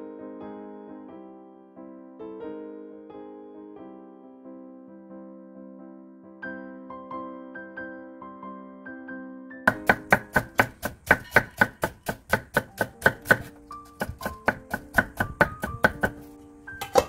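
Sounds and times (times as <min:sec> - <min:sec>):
knife chopping on wooden board: 0:09.7 - 0:17.0.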